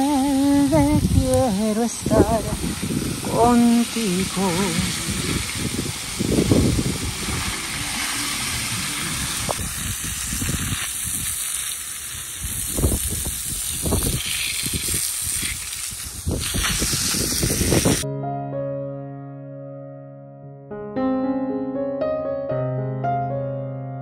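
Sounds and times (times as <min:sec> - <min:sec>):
garden hose spray hissing: 0:00.0 - 0:18.0
low rumbling: 0:00.6 - 0:10.9
piano music: 0:18.0 - 0:24.0.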